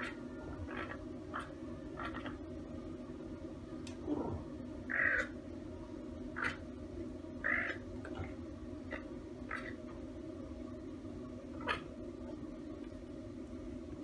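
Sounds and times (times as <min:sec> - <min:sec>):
caracal high calls: 0:04.9 - 0:05.3.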